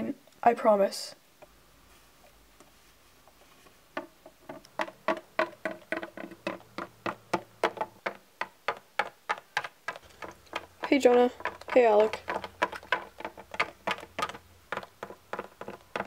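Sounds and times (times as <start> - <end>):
plastic figurine tapping on wood: 4.0 - 16.0.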